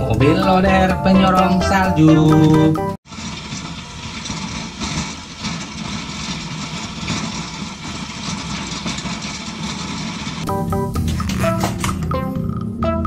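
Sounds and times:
heavy loader engine running: 0.0 - 13.0
plow blade pushing snow: 2.5 - 11.8.

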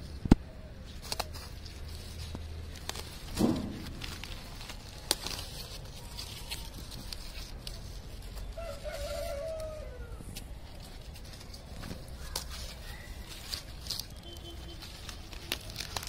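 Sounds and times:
leaves rustling and snapping: 0.0 - 16.0
rooster crowing: 8.5 - 10.2.

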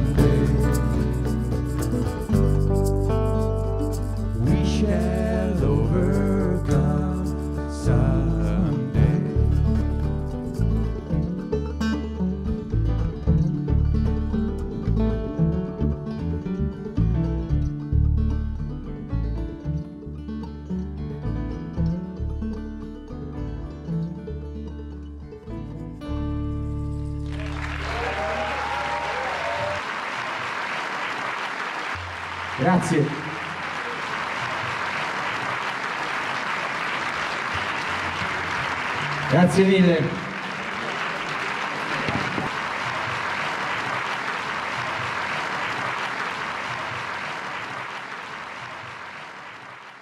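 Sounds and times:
audience applauding: 0.0 - 5.2, 27.2 - 50.0.

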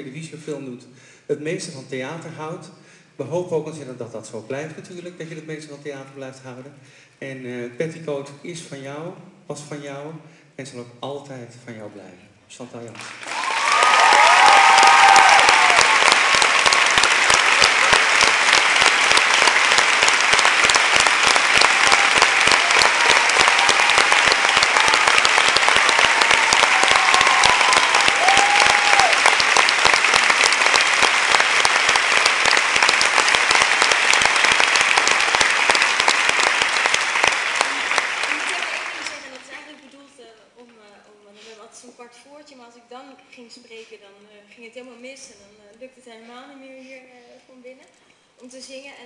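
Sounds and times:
audience applauding: 13.0 - 39.7
people cheering: 13.1 - 39.3.

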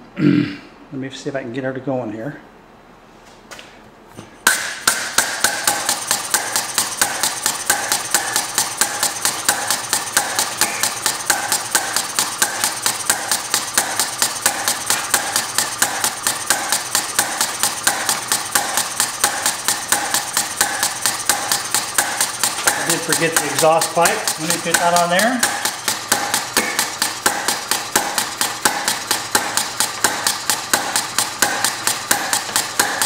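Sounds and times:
model air engine clicking and puffing: 5.1 - 33.0.

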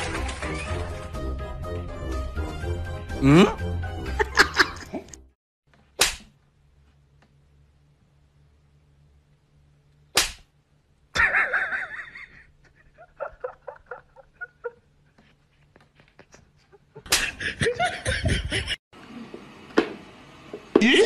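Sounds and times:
person laughing: 3.2 - 5.2, 11.2 - 15.0, 16.2 - 18.8
sharp smack: 6.0 - 6.4, 10.2 - 10.5.

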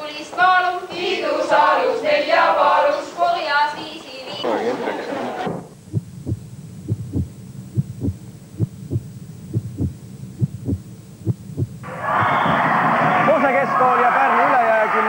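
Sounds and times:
faint low hum: 0.0 - 13.9
heartbeat double thumps: 5.5 - 12.5.

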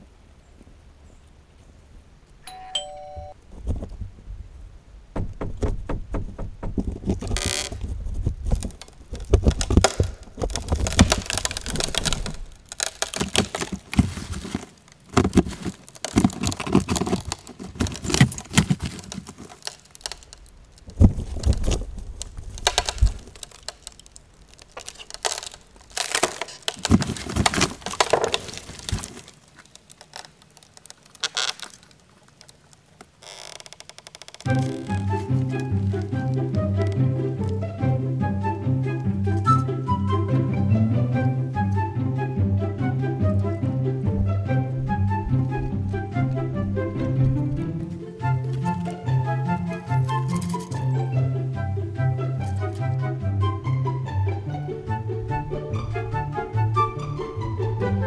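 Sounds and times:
ding-dong doorbell chime: 2.5 - 3.4
crackling and rustling: 3.4 - 40.0, 44.1 - 53.2
low thumps: 3.6 - 14.4, 42.8 - 52.3.

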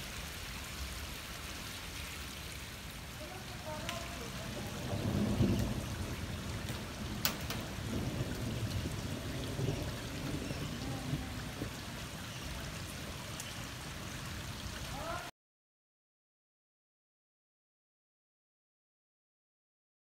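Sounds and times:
rainwater rushing down street: 0.0 - 15.3.

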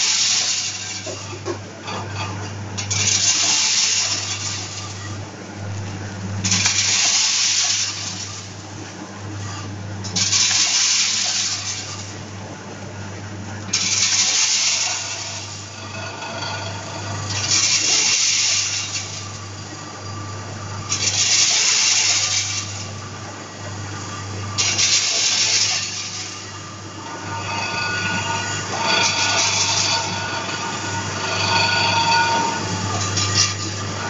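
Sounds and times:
low machine hum: 0.0 - 34.0
packing machine hiss: 6.5 - 8.3, 10.2 - 11.9, 13.8 - 15.6, 17.4 - 19.1, 20.9 - 22.8, 24.5 - 26.4.

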